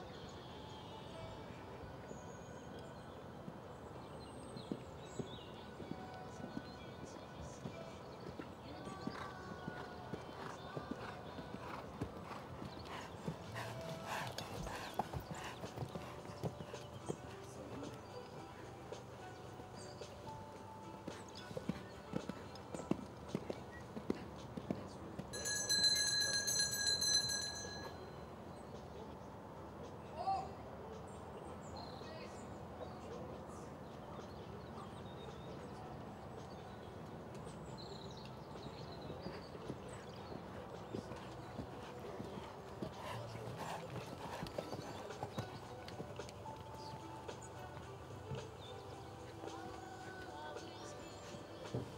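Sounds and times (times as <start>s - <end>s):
birds chirping: 2.0s - 29.3s, 30.4s - 51.9s
hoofbeats on sand: 4.6s - 19.2s, 19.8s - 25.5s, 38.6s - 51.9s.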